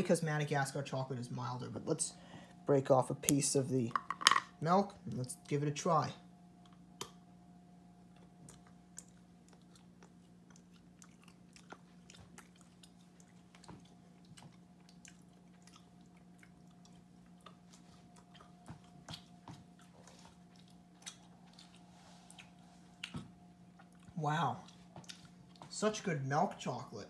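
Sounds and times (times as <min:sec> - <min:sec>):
steady low hum: 0:00.0 - 0:27.0
chewing and mouth clicks: 0:08.1 - 0:25.8.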